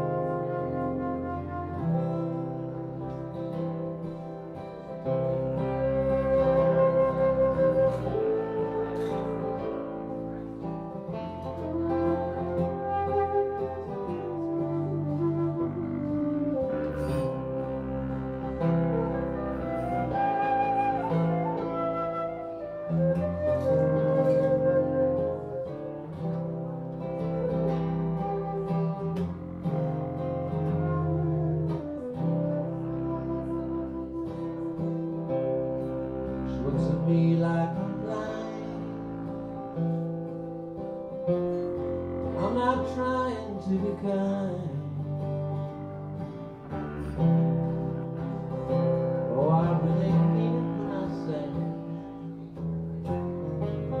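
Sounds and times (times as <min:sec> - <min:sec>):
flute melody: 0:00.0 - 0:54.0
strummed acoustic guitar: 0:00.0 - 0:54.0
bowed upright bass: 0:04.7 - 0:25.2.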